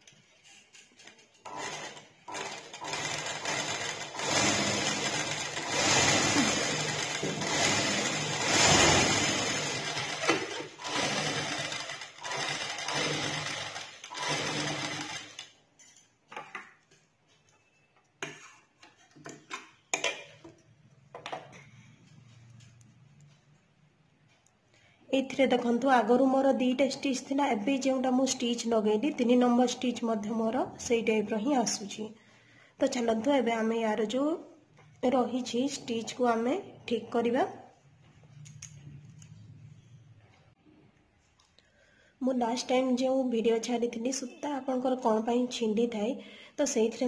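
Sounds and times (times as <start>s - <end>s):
sewing machine stitching: 1.4s - 15.5s.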